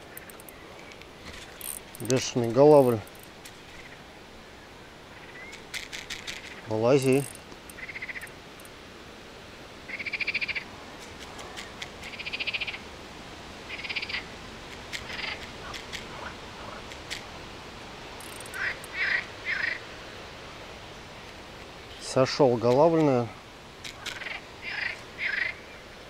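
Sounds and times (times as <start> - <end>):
frogs calling: 5.1 - 8.4, 9.9 - 10.7, 12.0 - 12.9, 13.7 - 14.3, 15.0 - 17.0, 18.2 - 19.9, 23.8 - 25.7.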